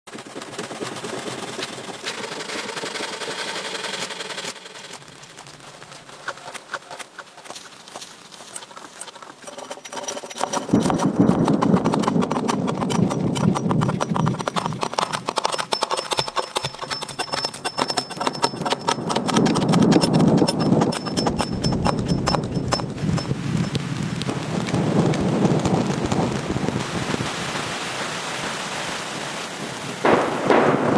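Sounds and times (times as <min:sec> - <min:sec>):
rustling: 0:00.1 - 0:25.9
hatchet chopping log: 0:10.6 - 0:23.3.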